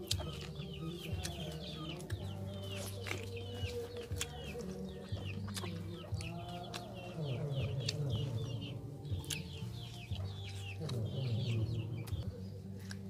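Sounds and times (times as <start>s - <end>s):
wet smacking clicks from eating: 0.0s - 0.6s, 4.0s - 7.0s, 9.1s - 9.8s
chickens clucking: 0.0s - 13.0s.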